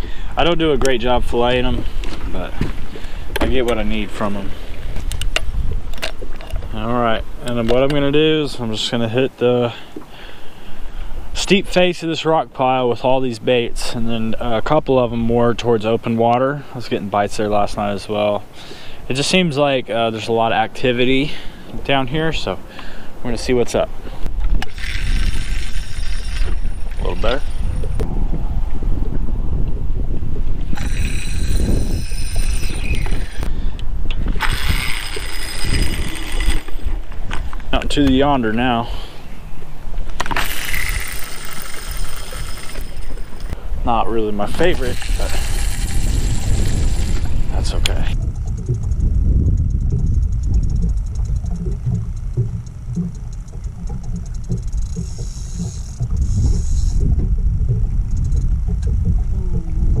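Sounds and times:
wind rumble on microphone: 0:00.0 - 0:09.1, 0:23.3 - 1:00.0
fishing reel whirring: 0:24.6 - 0:28.0, 0:30.6 - 0:33.5, 0:34.2 - 0:37.4, 0:40.2 - 0:43.6, 0:44.5 - 0:59.8
fast high ticking: 0:44.8 - 1:00.0
small knocks: 0:49.9 - 0:56.2.

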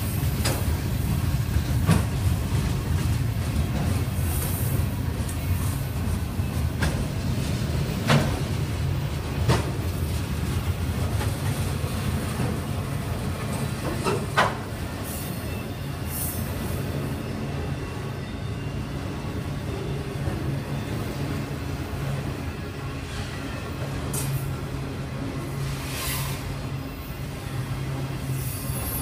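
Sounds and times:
train sharp knocks: 0:00.0 - 0:00.8, 0:01.6 - 0:02.3, 0:06.7 - 0:07.2, 0:08.0 - 0:08.5, 0:09.3 - 0:09.9, 0:13.8 - 0:14.8
train wheels rumbling on rail: 0:00.0 - 0:29.0.

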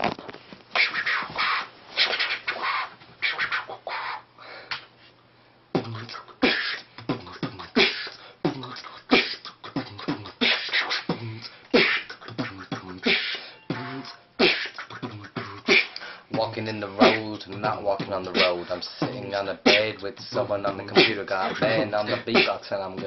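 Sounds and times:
beatboxing beat: 0:00.1 - 0:04.8, 0:05.7 - 0:23.0
mouth clicks: 0:05.8 - 0:17.6.

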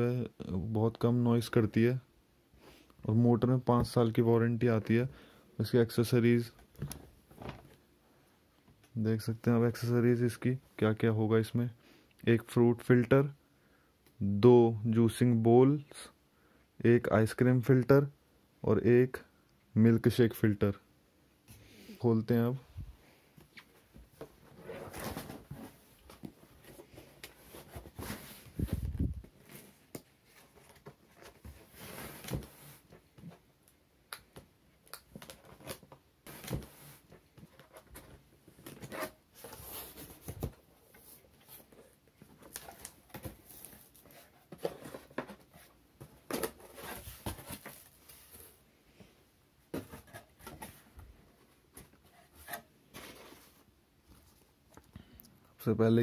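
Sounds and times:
cardboard rustling and scraping: 0:23.8 - 0:33.4, 0:35.2 - 0:48.6, 0:49.7 - 0:54.4.

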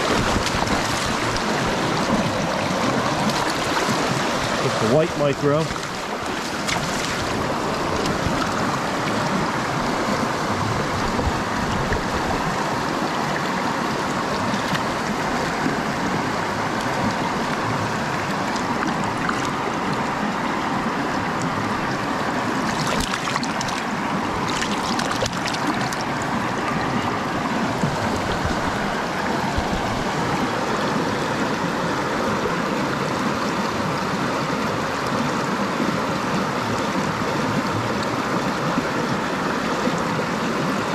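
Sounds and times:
fish splashing in a net: 0:00.0 - 0:04.6, 0:05.7 - 0:10.0, 0:18.3 - 0:19.6, 0:22.5 - 0:30.0
stream rushing over stones: 0:00.0 - 0:40.9.

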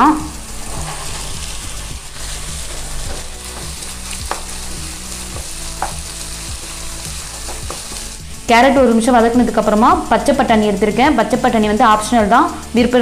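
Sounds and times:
vegetables sizzling in oil: 0:00.0 - 0:13.0
wooden spatula stirring: 0:00.3 - 0:08.3
spatula knocking against pan: 0:03.5 - 0:04.6, 0:05.3 - 0:06.1, 0:07.4 - 0:08.1.

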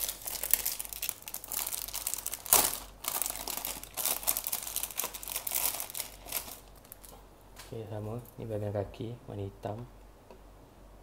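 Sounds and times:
plastic bag crinkling: 0:00.0 - 0:07.2.

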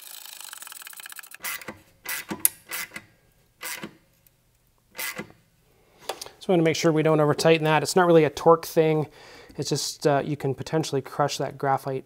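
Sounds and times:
ratchet wrench clicking: 0:00.0 - 0:03.0.

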